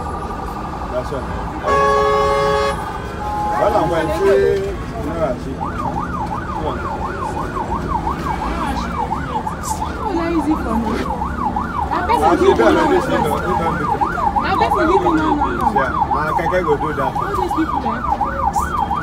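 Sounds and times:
voices: 0:00.0 - 0:19.0
electronic siren wailing: 0:01.6 - 0:19.0.

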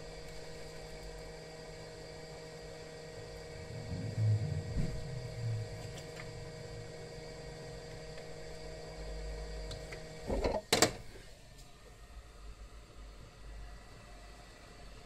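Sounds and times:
hot air gun humming and whining: 0:00.0 - 0:10.4.

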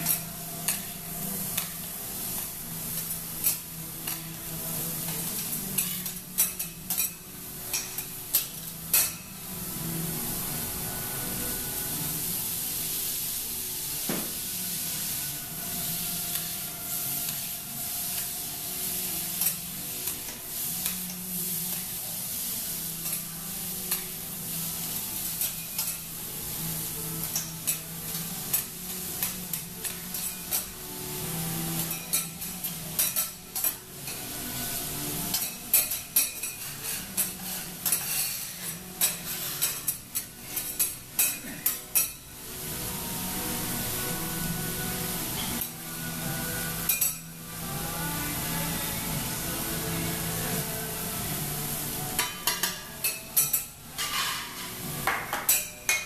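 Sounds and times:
metal spatulas scraping and clacking: 0:00.0 - 0:01.8, 0:02.4 - 0:04.3, 0:05.0 - 0:09.3, 0:25.4 - 0:26.1, 0:31.8 - 0:34.2, 0:35.3 - 0:42.2, 0:52.2 - 0:56.0
food sizzling on griddle: 0:00.0 - 0:56.0.

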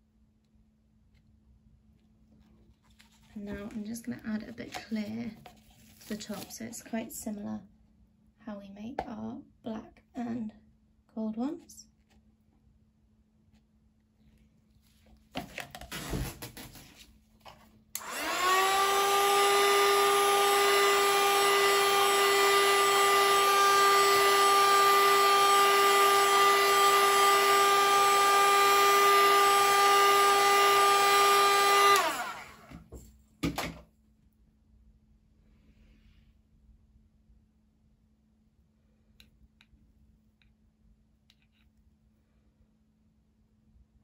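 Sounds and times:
heat gun fan whine: 0:17.9 - 0:33.0.

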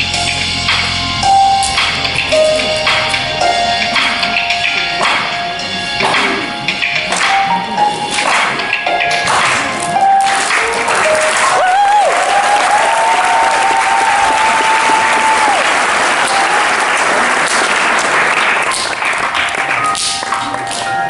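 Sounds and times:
audience applauding and cheering: 0:09.3 - 0:21.0.

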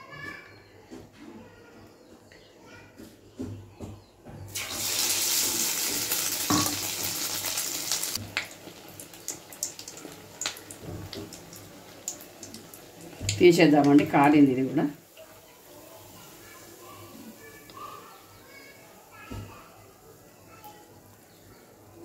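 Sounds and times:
bread sizzling in hot oil: 0:04.5 - 0:19.2
small crackling pops: 0:08.2 - 0:14.1.

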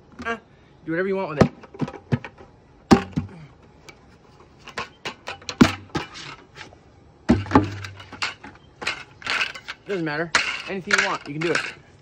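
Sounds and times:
plastic bucket clacking and snapping: 0:01.4 - 0:03.3.

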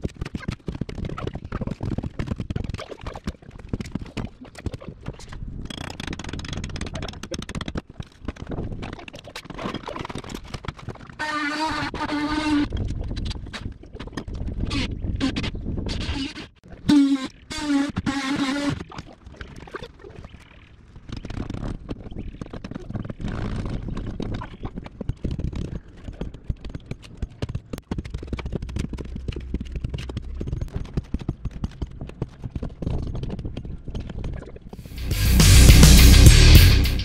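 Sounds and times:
loud music: 0:34.9 - 0:37.0
low rumble: 0:34.9 - 0:37.0.

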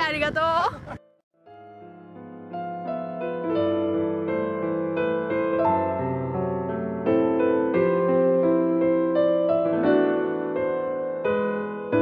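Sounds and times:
slow keyboard piece: 0:01.4 - 0:12.0.

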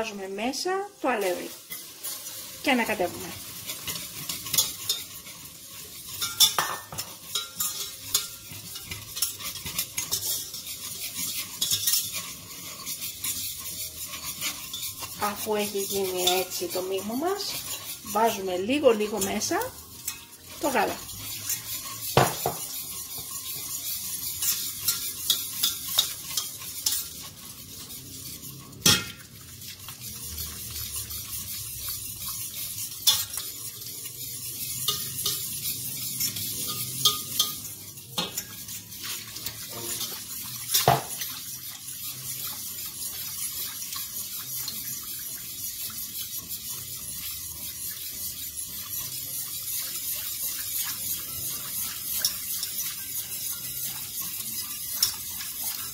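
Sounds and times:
utensil scraping a saucepan: 0:01.0 - 0:55.9
utensil knocking against pot: 0:22.2 - 0:22.7.

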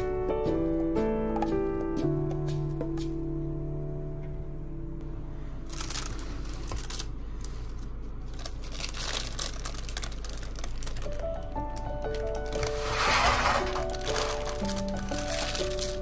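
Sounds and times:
baking paper crinkling: 0:05.7 - 0:16.0.

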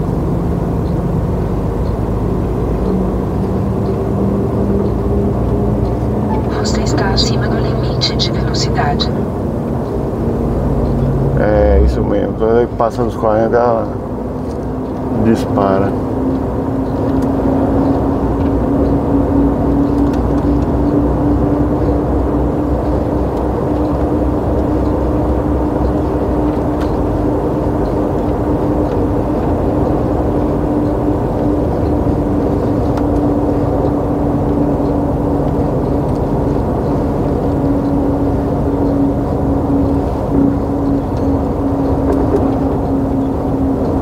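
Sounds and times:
road rumble: 0:00.0 - 0:44.0
truck engine drone: 0:00.0 - 0:44.0.

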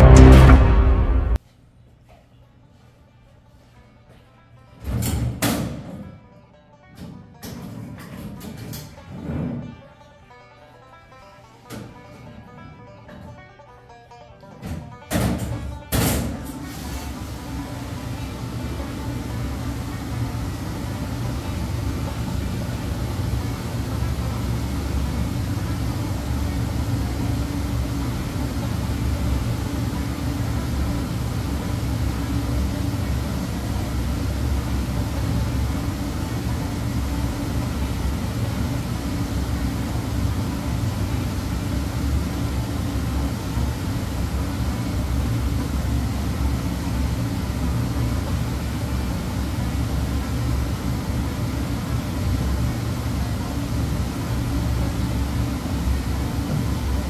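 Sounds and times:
kitchen machinery humming: 0:16.6 - 0:57.0.

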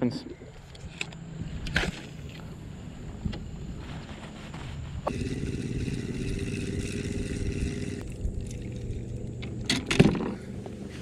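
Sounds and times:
fishing reel gears whirring: 0:05.1 - 0:09.3.

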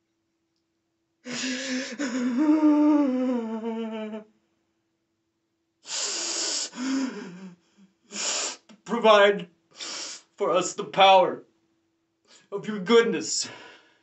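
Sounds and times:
sharp breathy gasp: 0:01.3 - 0:02.2, 0:05.9 - 0:08.7, 0:09.8 - 0:10.4
man sobbing: 0:01.3 - 0:04.2.

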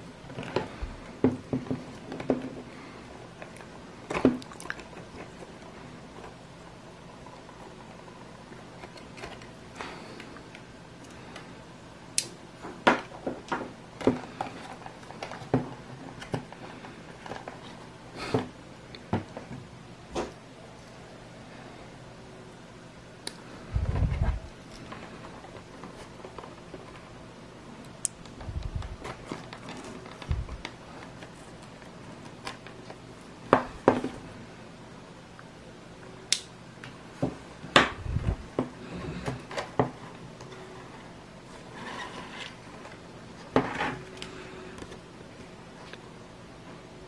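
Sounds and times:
plastic crackles: 0:28.2 - 0:33.0.

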